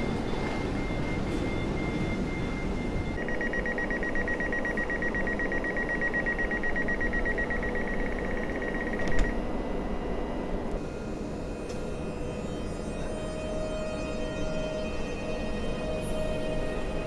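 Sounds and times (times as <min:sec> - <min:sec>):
low train hum: 0:00.0 - 0:17.0
rapid high-pitched door beeping: 0:03.2 - 0:09.4.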